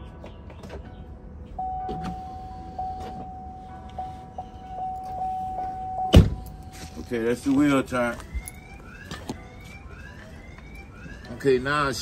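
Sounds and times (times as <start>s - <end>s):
low engine rumble: 0.0s - 9.0s
power steering whine: 1.6s - 7.6s.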